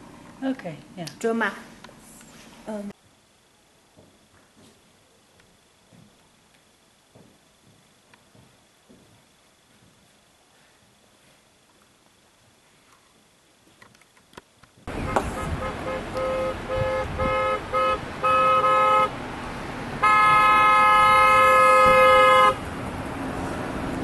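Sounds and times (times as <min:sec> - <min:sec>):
street noise: 0:13.0 - 0:24.0
vehicle horn tooting: 0:14.9 - 0:19.2, 0:20.0 - 0:22.6.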